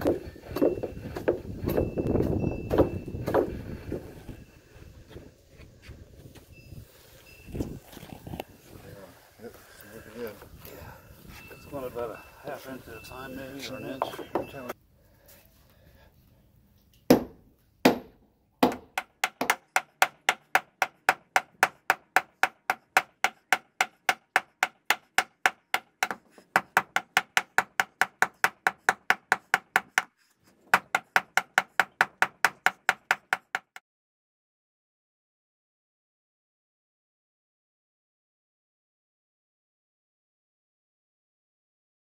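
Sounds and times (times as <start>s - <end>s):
hammer striking wooden piling: 0.0s - 3.6s, 17.1s - 33.8s.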